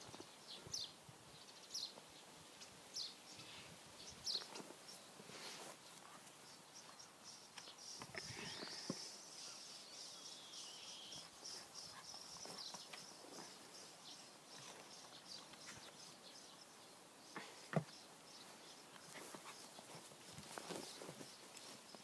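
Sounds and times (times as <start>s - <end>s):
paws pattering on grass: 11.1s - 16.2s, 18.4s - 22.0s
light rustles: 18.9s - 22.0s.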